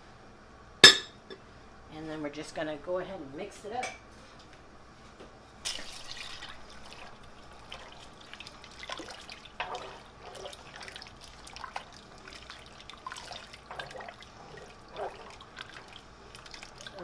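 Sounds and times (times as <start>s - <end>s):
spoon stirring soup: 6.6s - 17.0s.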